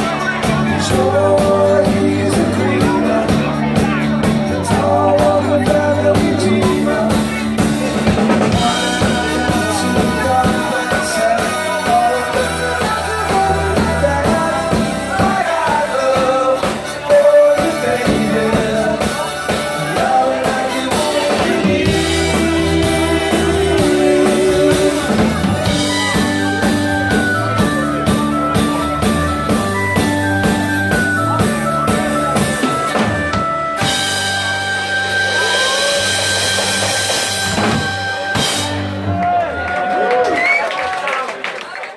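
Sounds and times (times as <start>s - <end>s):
person singing lead vocal: 0.0s - 26.5s
bass guitar: 0.0s - 40.6s
drum kit: 0.0s - 40.6s
electric guitars: 0.0s - 40.6s.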